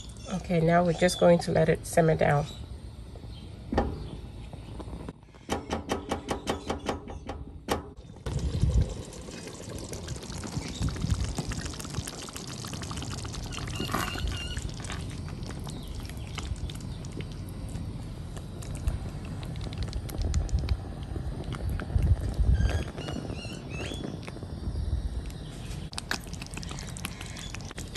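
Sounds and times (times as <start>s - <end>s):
stew bubbles popping: 8.1s - 23.0s, 25.9s - 27.9s.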